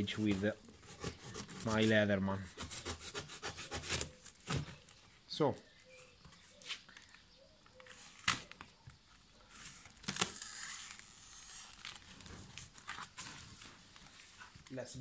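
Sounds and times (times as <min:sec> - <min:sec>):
tape and cardboard tearing: 0:00.0 - 0:05.0, 0:07.8 - 0:08.7, 0:09.5 - 0:14.4.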